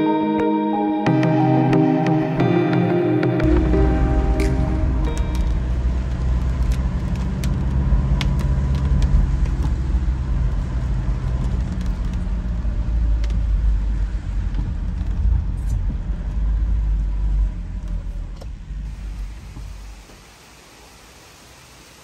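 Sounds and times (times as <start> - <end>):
vehicle engine rumbling: 3.4 - 20.2.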